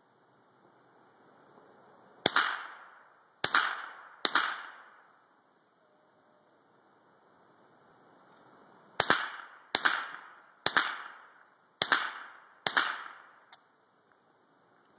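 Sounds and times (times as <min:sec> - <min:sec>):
gunshots with echo: 0:02.2 - 0:04.9, 0:09.0 - 0:13.3.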